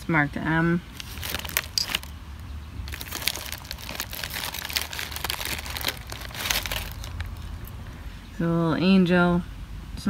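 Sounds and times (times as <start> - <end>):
low steady hum: 0.0 - 10.0
jewelry crinkling and clicking: 1.0 - 2.2, 2.9 - 7.8.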